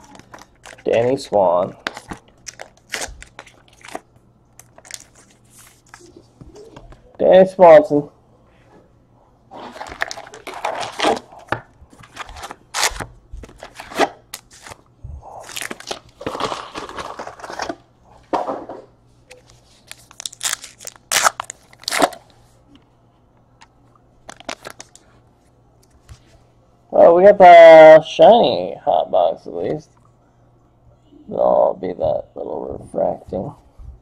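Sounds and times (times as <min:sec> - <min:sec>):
pack wrapper tearing: 0:00.0 - 0:04.0, 0:04.6 - 0:06.0, 0:09.6 - 0:11.5, 0:12.1 - 0:14.8, 0:15.4 - 0:17.8, 0:19.8 - 0:22.2, 0:24.2 - 0:25.0
wrappers crinkling and rustling: 0:00.0 - 0:04.0, 0:04.6 - 0:06.2, 0:09.6 - 0:14.8, 0:15.4 - 0:17.8, 0:19.3 - 0:22.2, 0:24.2 - 0:25.2.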